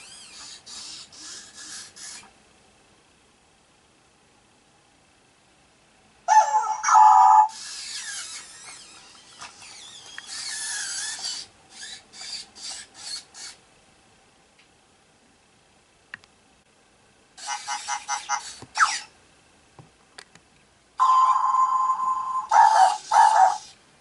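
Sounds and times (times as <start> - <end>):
toy gear motors whirring: 0.0 - 2.3, 6.3 - 13.6, 17.4 - 19.1, 22.3 - 23.8
electronic dog yelp: 6.3 - 7.6, 17.4 - 19.1, 21.0 - 23.8.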